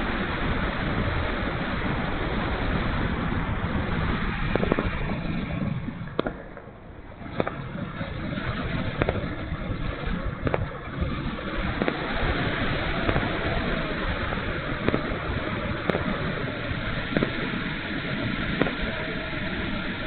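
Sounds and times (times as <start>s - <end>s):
wind rushing over camera: 0.0s - 20.0s
sharp pops: 4.3s - 17.8s.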